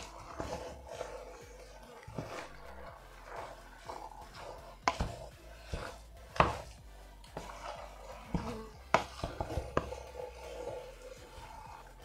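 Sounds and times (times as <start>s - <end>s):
soft scraping in a pot: 0.0s - 12.0s
wooden spatula knocking a pot: 4.8s - 6.7s, 7.4s - 11.4s.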